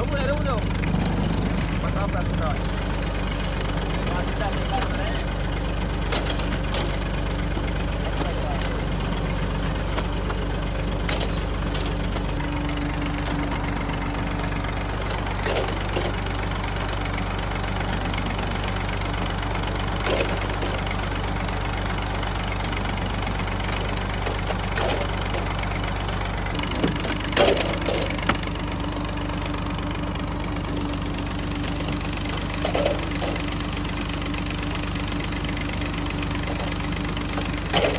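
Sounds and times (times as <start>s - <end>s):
tractor diesel engine running: 0.0s - 37.9s
machine metal clanks: 8.2s - 9.2s, 32.3s - 33.4s, 37.6s - 37.9s.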